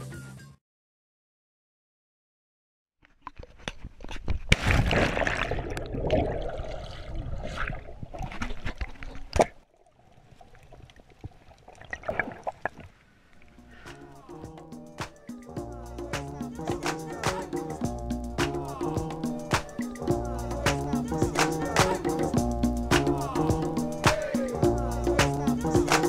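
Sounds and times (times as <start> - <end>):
water sloshing and splashing: 3.2 - 13.6
sharp splash: 4.5 - 9.6.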